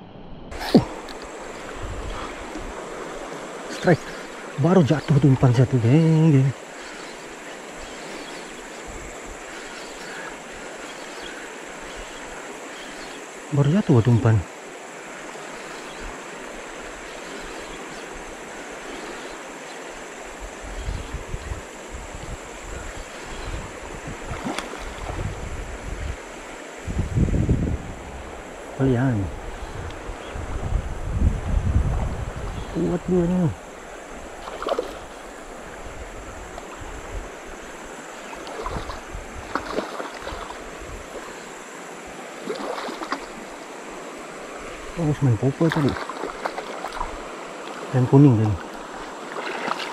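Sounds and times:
wind buffeting microphone: 0.5s - 4.2s, 20.3s - 41.4s
shallow flowing water: 0.5s - 49.9s
bird splashing in water: 24.2s - 25.4s, 33.9s - 35.7s, 38.2s - 41.5s, 42.2s - 43.7s, 45.6s - 47.9s, 48.6s - 49.9s
river rapids rushing: 33.6s - 45.0s, 45.6s - 49.9s.

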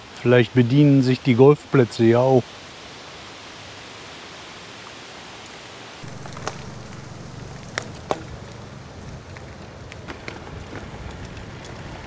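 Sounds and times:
low rumble: 6.0s - 10.7s.

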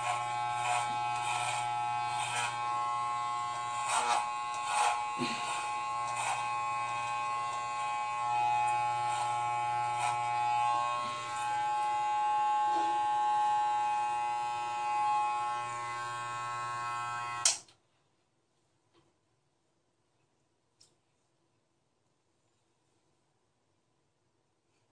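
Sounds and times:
electric hair clippers running: 0.0s - 17.6s.

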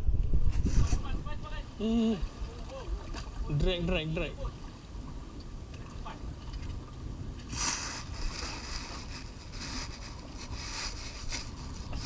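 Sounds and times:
choppy sea water: 0.0s - 12.0s
wind buffeting microphone: 0.0s - 12.0s
rushing hiss: 7.5s - 12.0s.

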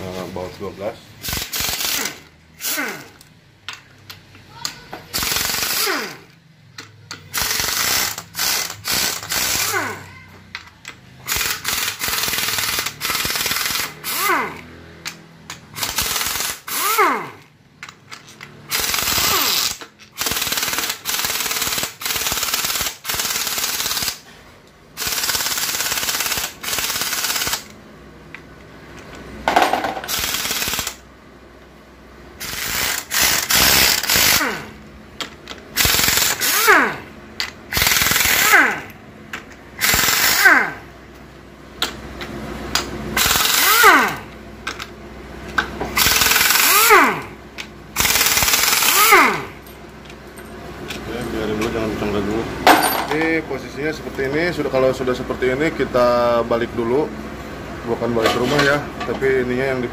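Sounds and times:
impact wrench bursts: 1.2s - 3.9s, 4.5s - 24.3s, 24.9s - 27.8s, 29.5s - 31.1s, 32.4s - 40.9s, 42.7s - 51.8s.

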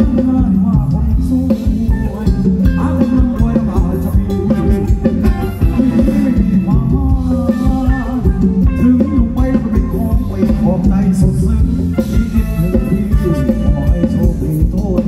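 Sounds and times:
live band dance music: 0.0s - 15.0s.

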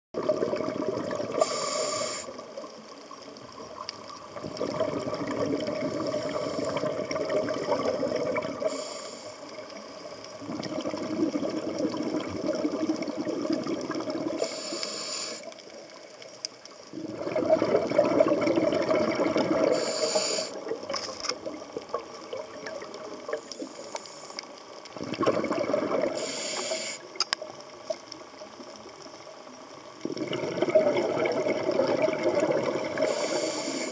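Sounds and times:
exhaled bubbles rushing: 0.2s - 1.6s, 2.4s - 8.7s, 10.3s - 14.4s, 16.9s - 19.9s, 20.5s - 23.4s, 24.8s - 26.3s, 29.8s - 33.9s
regulator hissing on inhale: 1.3s - 2.6s, 5.9s - 7.0s, 8.5s - 10.3s, 14.4s - 15.6s, 19.6s - 20.6s, 23.3s - 24.6s, 26.1s - 27.2s, 32.8s - 33.9s.

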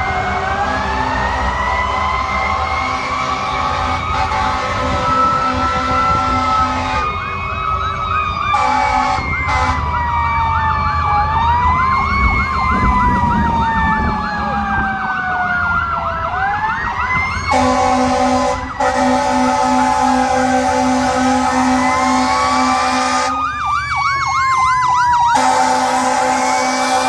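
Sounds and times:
fast siren yelp: 0.0s - 27.0s
fire truck sirens wailing: 0.0s - 27.0s
horn blasts: 3.1s - 7.2s, 8.5s - 9.9s, 17.5s - 23.4s, 25.3s - 27.0s.

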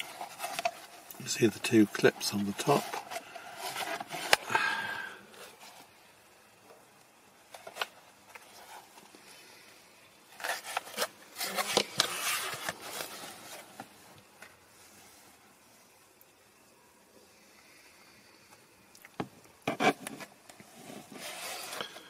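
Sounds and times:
plastic scraping and rustling: 0.0s - 4.5s, 7.4s - 9.3s, 10.3s - 15.4s, 19.2s - 22.0s.

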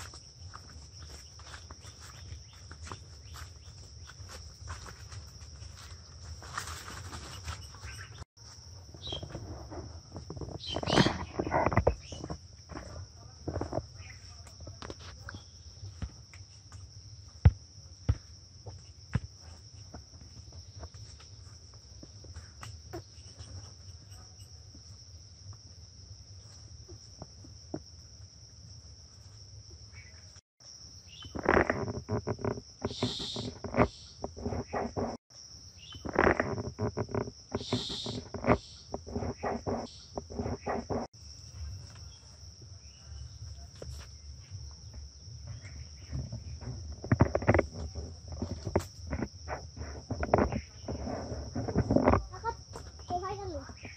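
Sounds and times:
leaves and branches rustling: 0.0s - 12.8s
insects droning: 0.0s - 53.9s.

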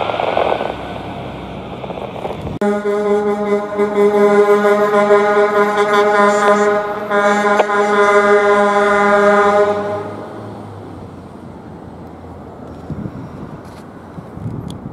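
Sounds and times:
low traffic rumble: 0.0s - 14.9s
fire truck horn blast: 2.6s - 10.4s.

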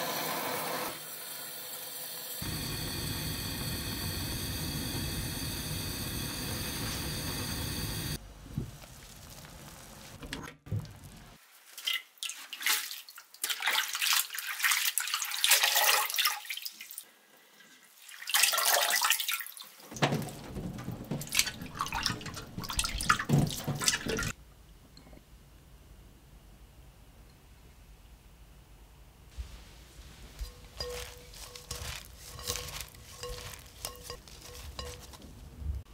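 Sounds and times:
water sloshing and splashing: 11.5s - 17.0s, 18.0s - 24.4s.

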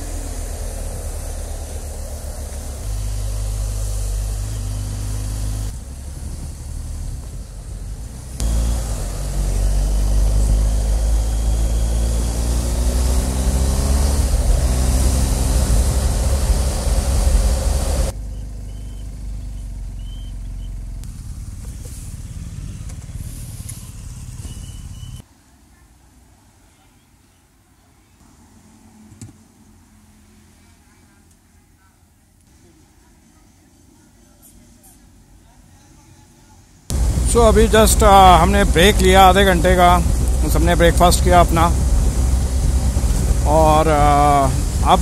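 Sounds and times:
motorcycle engine: 0.0s - 25.2s, 36.9s - 45.0s
wind noise: 2.7s - 18.1s, 36.9s - 45.0s.

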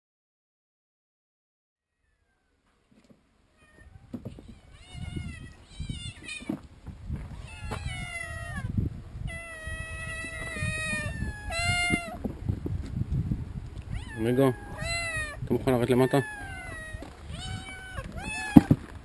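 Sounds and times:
rustling: 2.5s - 8.5s
cats meowing: 3.5s - 6.7s, 7.3s - 12.3s, 13.8s - 19.0s.

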